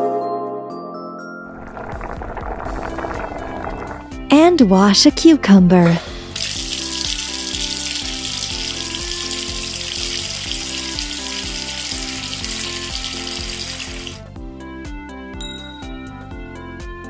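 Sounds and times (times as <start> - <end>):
light background music: 2.6 - 17.0
water running from a tap: 6.1 - 14.3.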